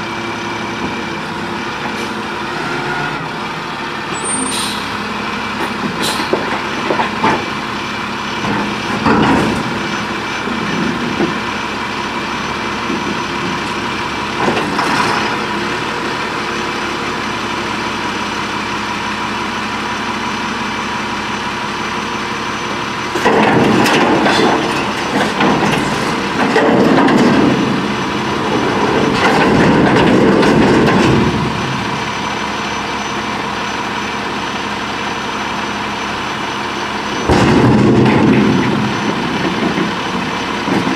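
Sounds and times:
garbage truck engine running: 0.0s - 40.9s
loader arm clatter and strain: 8.3s - 11.6s, 12.4s - 16.3s, 22.9s - 33.2s, 37.1s - 40.9s.

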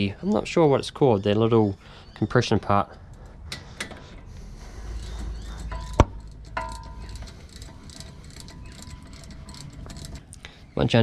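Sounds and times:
ratchet ticking: 5.0s - 10.4s
metallic tool clank: 5.6s - 7.2s.

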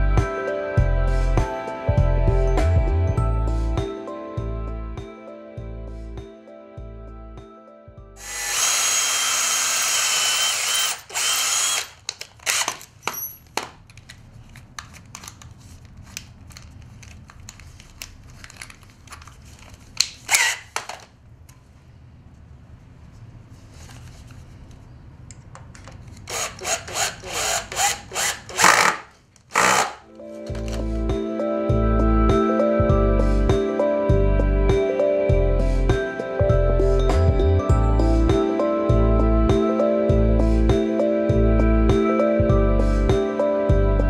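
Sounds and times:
cordless drill driving screws: 8.2s - 13.4s, 20.3s - 21.0s, 26.2s - 30.0s.

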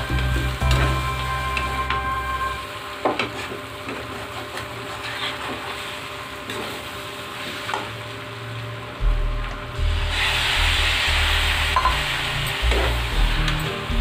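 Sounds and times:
spatula scraping a pan: 3.4s - 5.9s
curry sizzling in a pan: 9.9s - 14.0s.

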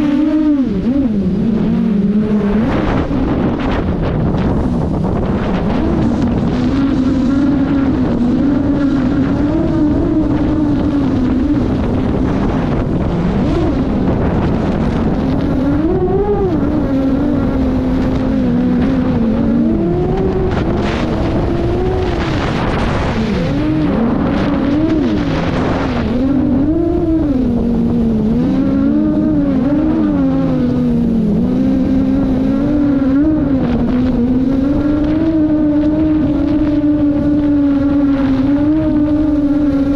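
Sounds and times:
drone motors whining: 0.0s - 39.9s
rush of air: 2.3s - 15.4s, 20.5s - 27.6s.

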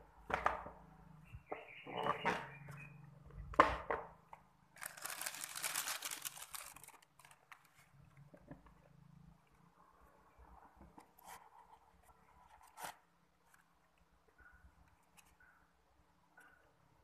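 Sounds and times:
tissue paper crinkling: 4.8s - 7.9s.

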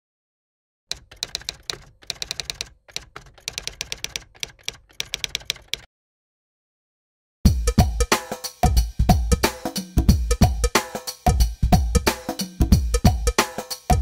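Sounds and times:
typewriter keys clacking: 0.9s - 5.9s.

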